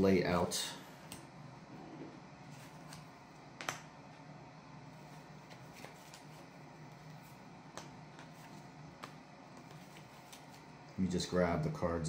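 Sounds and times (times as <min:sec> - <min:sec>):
cards clicking on a mat: 0:09.0 - 0:10.6.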